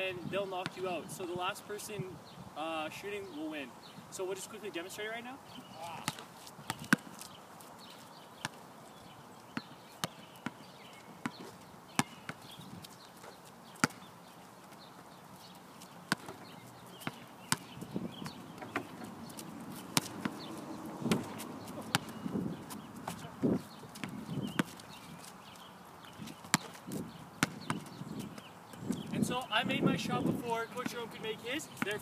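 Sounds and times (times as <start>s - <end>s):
basketballs bouncing on asphalt: 0.6s - 0.9s, 5.7s - 32.0s.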